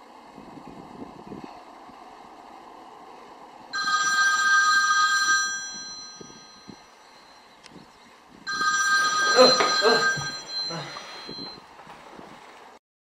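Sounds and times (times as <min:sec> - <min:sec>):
phone ringing: 0:03.8 - 0:07.6, 0:08.5 - 0:11.6.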